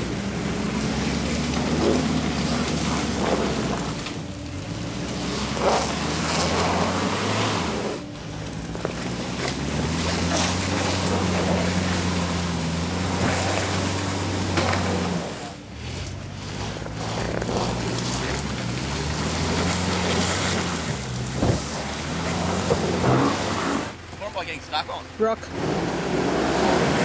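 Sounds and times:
off-road vehicle engine under load: 0:00.0 - 0:27.0
tyres hissing through mud: 0:09.1 - 0:24.0.

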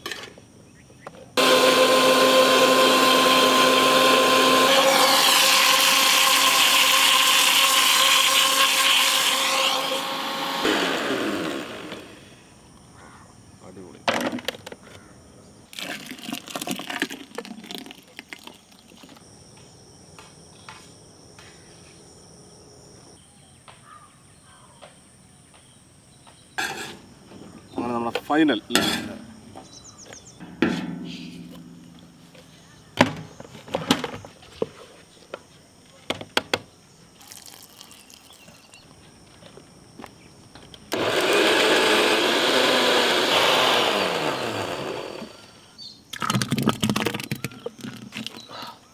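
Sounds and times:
electric blender running: 0:01.4 - 0:12.3, 0:40.9 - 0:45.6.

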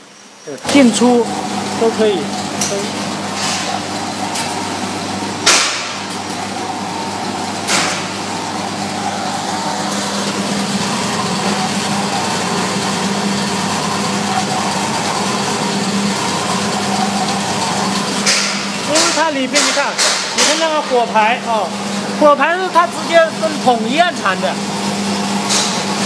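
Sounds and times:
roaster drum and motor humming: 0:00.0 - 0:26.0
sharp knocks: 0:05.4 - 0:06.1, 0:07.7 - 0:08.2, 0:18.2 - 0:21.0.

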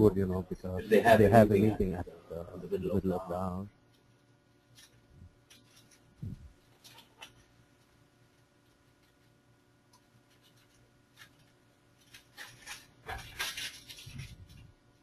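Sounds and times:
scratching and rustling: 0:03.9 - 0:09.4, 0:10.0 - 0:15.0.

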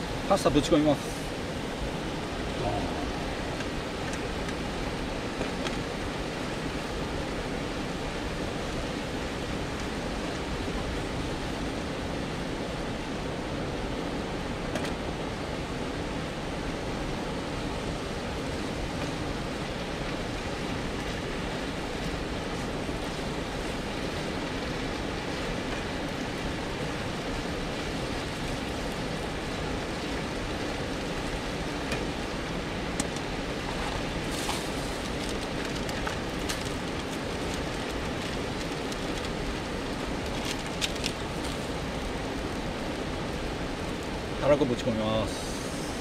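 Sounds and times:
camp stove burner hissing: 0:45.2 - 0:46.0.

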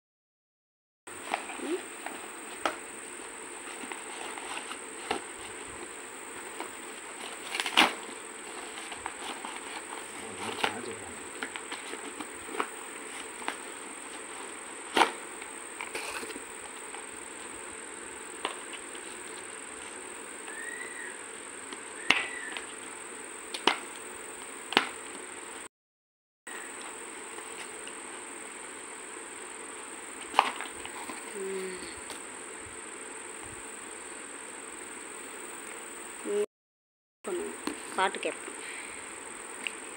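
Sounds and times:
cardboard packaging crackling: 0:03.6 - 0:17.1.

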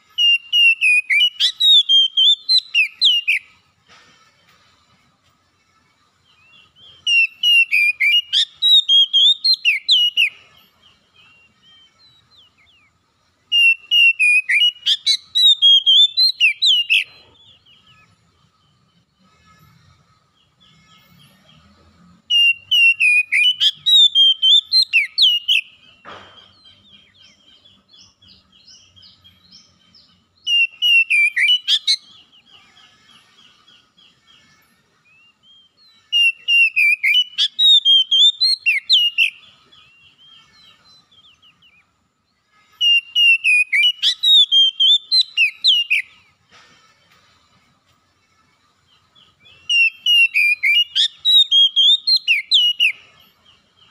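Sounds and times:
bird singing whistled phrases: 0:00.2 - 0:03.5, 0:06.4 - 0:10.4, 0:13.5 - 0:17.9, 0:22.3 - 0:25.9, 0:30.4 - 0:32.2, 0:35.1 - 0:41.8, 0:42.8 - 0:46.2, 0:49.5 - 0:53.1
soft bird twittering: 0:05.9 - 0:53.9.

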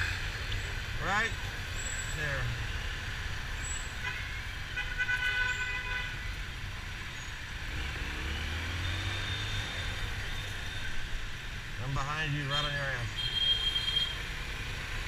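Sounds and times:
street traffic engines: 0:00.0 - 0:15.0
vehicle horn: 0:04.0 - 0:06.3, 0:12.5 - 0:14.3.

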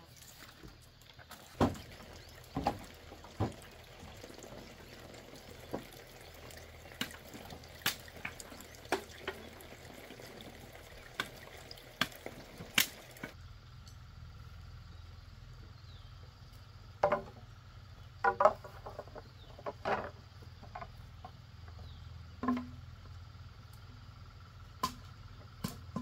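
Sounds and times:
bamboo poles knocking: 0:07.0 - 0:09.5, 0:11.1 - 0:13.4, 0:17.0 - 0:17.4, 0:18.2 - 0:21.8, 0:22.4 - 0:22.8, 0:24.8 - 0:26.0.

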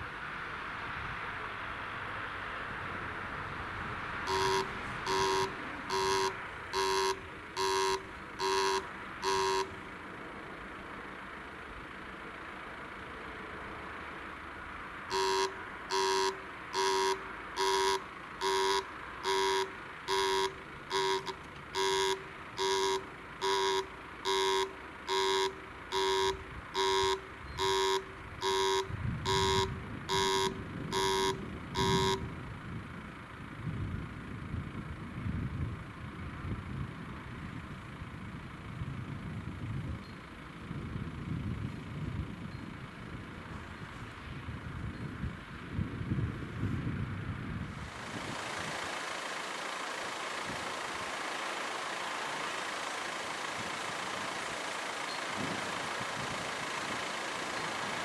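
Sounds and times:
car engine running low: 0:00.0 - 0:58.0
level crossing signal beeping: 0:04.2 - 0:09.9, 0:15.1 - 0:32.3.

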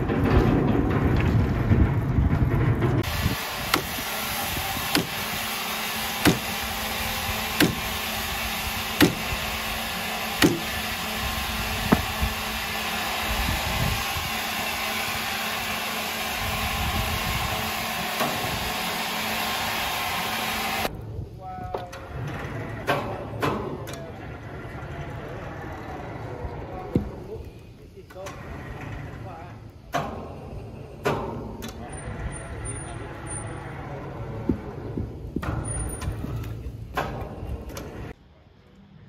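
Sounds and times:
steady machine noise: 0:00.0 - 0:21.4.

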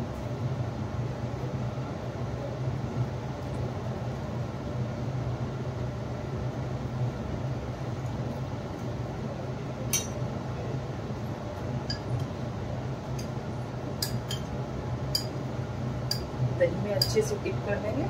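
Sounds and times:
steady low hum: 0:00.0 - 0:18.0
kitchenware clinking: 0:09.9 - 0:10.2.

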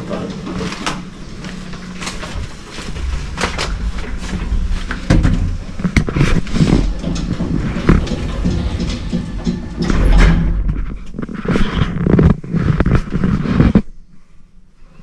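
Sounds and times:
low rumble: 0:01.1 - 0:14.0
clicks and knocks: 0:02.0 - 0:12.4.

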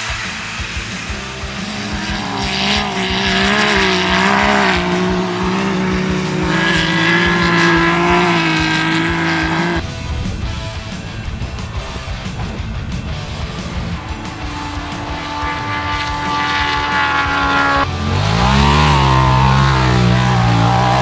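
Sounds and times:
race car engine at high revs: 0:00.0 - 0:10.0, 0:10.9 - 0:21.0.

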